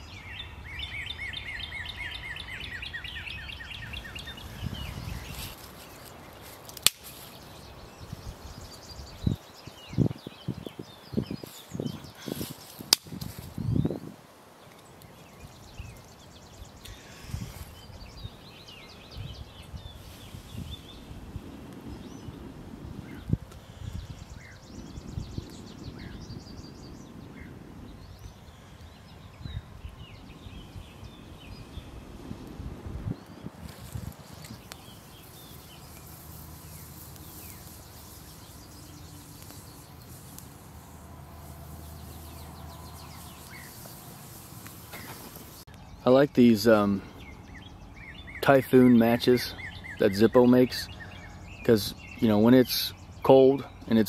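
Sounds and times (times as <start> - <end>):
birds chirping: 0.0 - 54.0
small fire crackling: 2.3 - 46.6
breath blowing puffs: 16.8 - 17.9.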